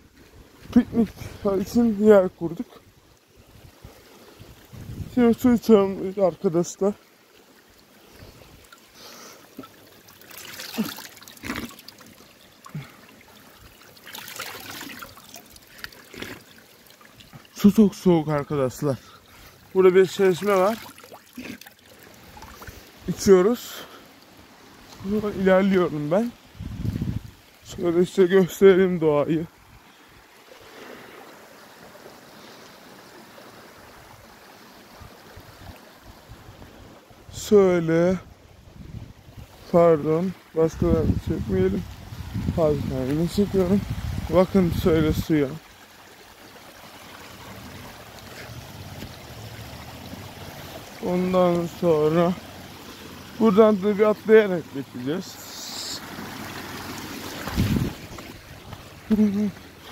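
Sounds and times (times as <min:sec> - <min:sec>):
mountain stream rushing: 0:00.0 - 0:59.9
water splashing onto stones: 0:04.2 - 0:28.2, 0:41.7 - 0:59.9
footsteps on dirt path: 0:57.3 - 0:59.9.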